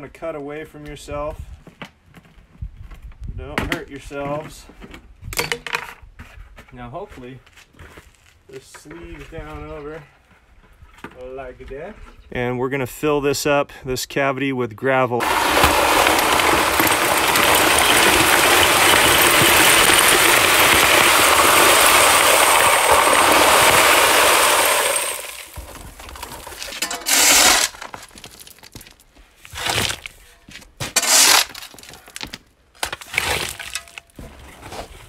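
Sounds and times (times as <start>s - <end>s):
gravel pouring into plastic bucket: 15.2s - 30.1s, 31.0s - 32.3s
stones rattling: 15.2s - 30.2s, 30.9s - 34.2s.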